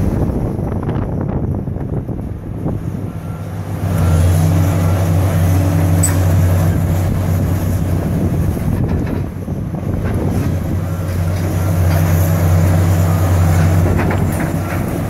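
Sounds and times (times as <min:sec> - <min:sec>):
excavator diesel engine revving: 0:02.7 - 0:15.0.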